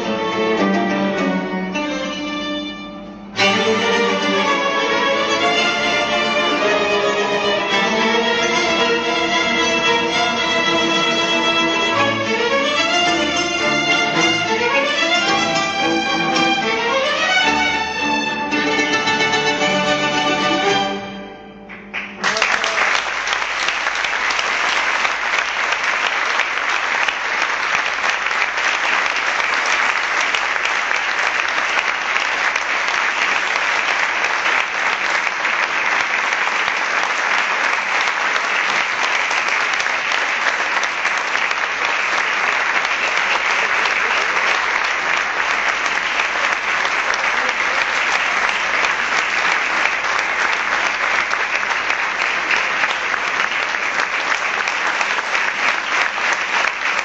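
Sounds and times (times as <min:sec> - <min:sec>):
audience applauding: 0:03.4 - 0:57.0.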